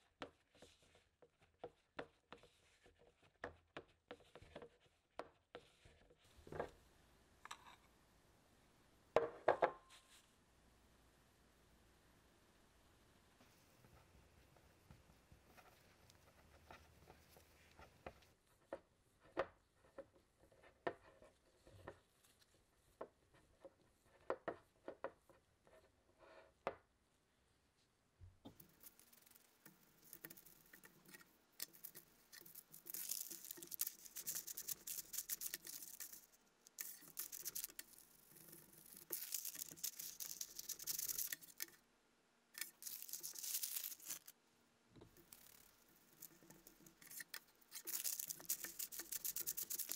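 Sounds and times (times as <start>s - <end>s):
parchment paper crinkling: 28.5s - 41.8s, 42.6s - 44.4s, 45.2s - 49.9s.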